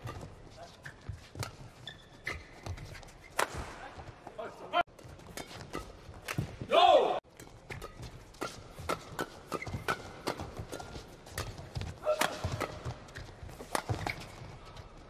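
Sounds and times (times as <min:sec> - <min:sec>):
rackets hitting shuttlecock: 0:00.0 - 0:03.9, 0:05.0 - 0:14.6
shoes squeaking: 0:00.0 - 0:06.5, 0:07.6 - 0:15.0.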